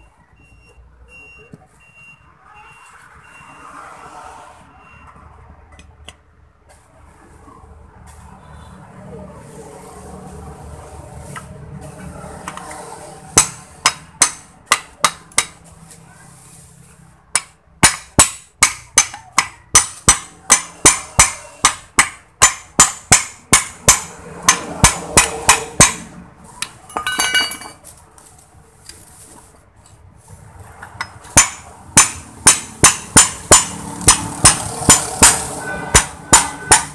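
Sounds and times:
hammer tapping metal: 13.4 - 15.6, 17.3 - 27.8, 30.8 - 36.9.

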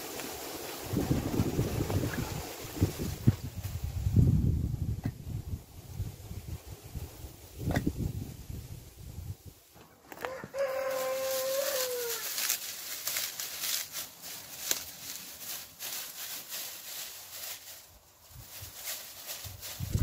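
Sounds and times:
bricks and dry grass rustling: 0.0 - 20.0
rooster crowing: 10.1 - 12.4.

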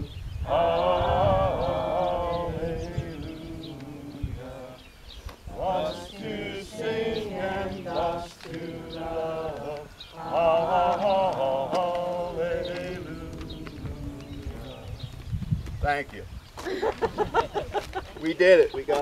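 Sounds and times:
congregation singing a hymn: 0.0 - 15.2.

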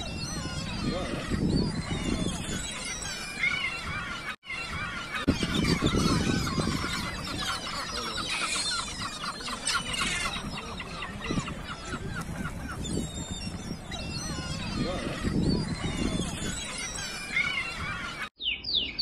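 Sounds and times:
birds calling: 0.0 - 19.0.

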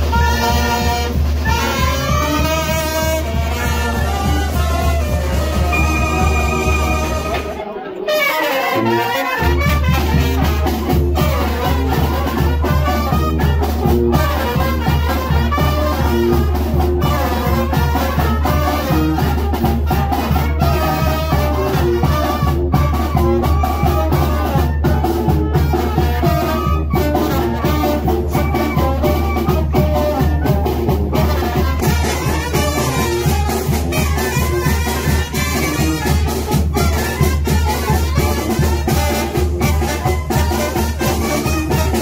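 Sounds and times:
snare and bass drum: 0.0 - 7.6, 9.4 - 42.0
brass band playing: 0.0 - 42.0
trumpets and saxophones: 0.0 - 42.0
sousaphone bass: 5.1 - 7.6.

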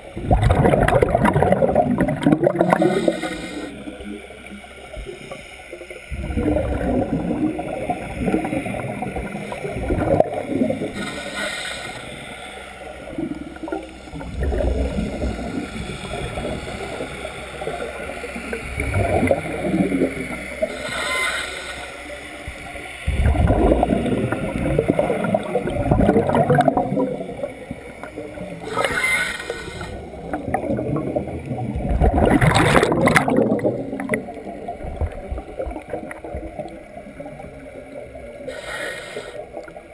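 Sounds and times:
exhaled air bubbling underwater: 0.0 - 39.9
regulator hiss on inhale: 2.6 - 4.0, 10.8 - 13.1, 15.4 - 17.7, 20.6 - 22.0, 28.6 - 30.0, 38.4 - 39.8.

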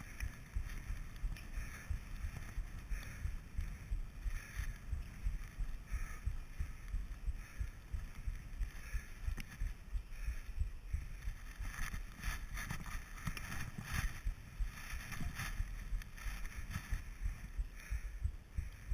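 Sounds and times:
wind rumbling on microphone: 0.0 - 18.9
skis scraping over snow: 11.3 - 17.2.

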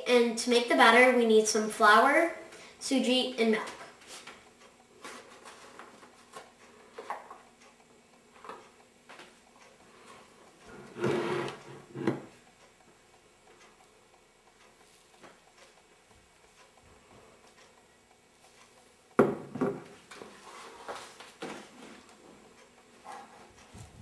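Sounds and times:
spoon scraping plastic bowl: 10.8 - 12.1
containers knocking on wooden table: 19.2 - 19.8.

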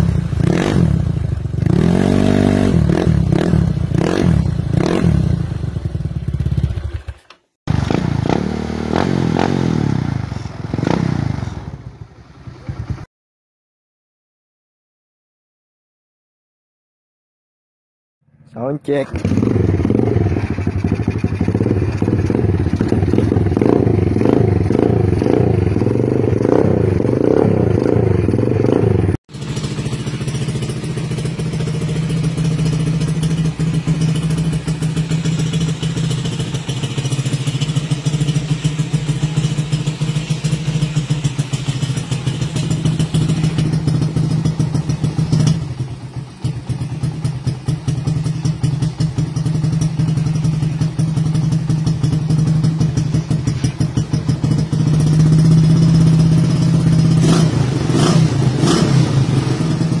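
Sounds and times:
exhaust cracks: 18.5 - 60.0
motorcycle engine fast idle: 29.3 - 57.2.

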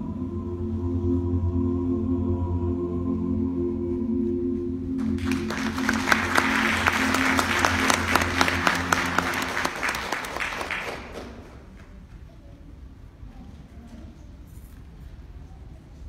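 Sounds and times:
ambient music low tones: 0.0 - 10.8
audience applauding: 5.0 - 12.0.

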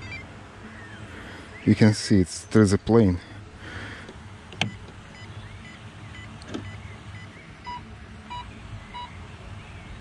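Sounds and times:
short electronic beeps: 4.7 - 9.1.

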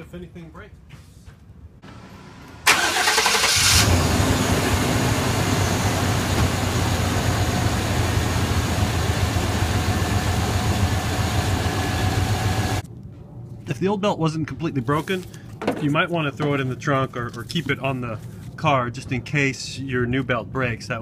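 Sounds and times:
car engine starting and idling: 1.8 - 12.8.

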